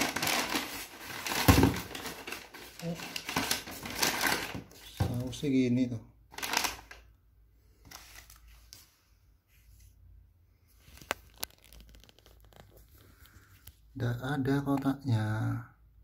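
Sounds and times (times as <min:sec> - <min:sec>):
paper and plastic bags rustling: 0:00.0 - 0:05.5, 0:06.3 - 0:07.0, 0:07.8 - 0:08.9, 0:10.7 - 0:13.8.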